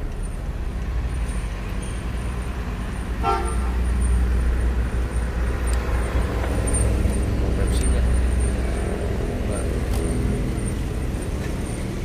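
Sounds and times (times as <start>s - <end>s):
car engine and tyres rumbling: 0.0s - 12.0s
car horn toot: 3.2s - 3.8s.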